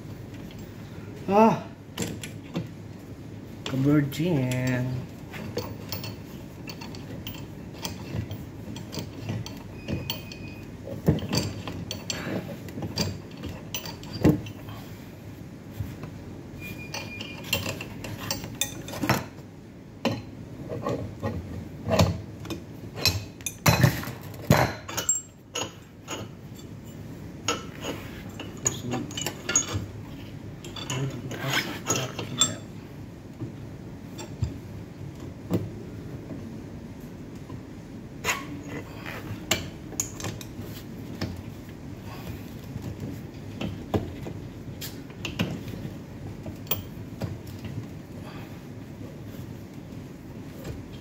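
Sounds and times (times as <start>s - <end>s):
metal tool clinking: 24.5s - 29.9s, 30.6s - 32.7s.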